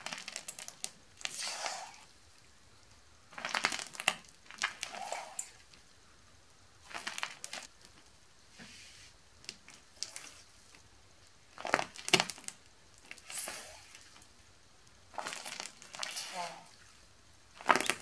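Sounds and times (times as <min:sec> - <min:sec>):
sticky slime popping and crackling: 0:00.0 - 0:02.0, 0:03.3 - 0:05.8, 0:06.8 - 0:08.0, 0:11.5 - 0:14.3, 0:15.1 - 0:16.4, 0:17.5 - 0:18.0.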